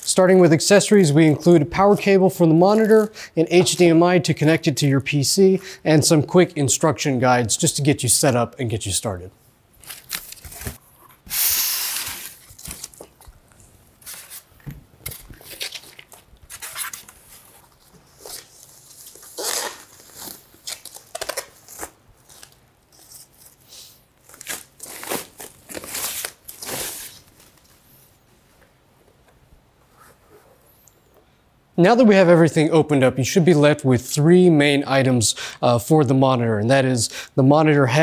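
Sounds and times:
styrofoam packing crinkling: 9.8 - 10.8, 11.5 - 13.4, 14.0 - 23.6, 24.2 - 27.8.

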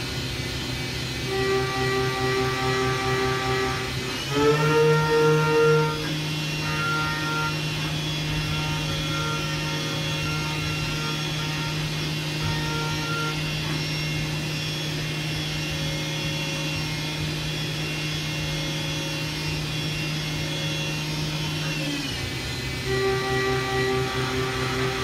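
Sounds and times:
milling machine spindle hum: 0.0 - 25.0.

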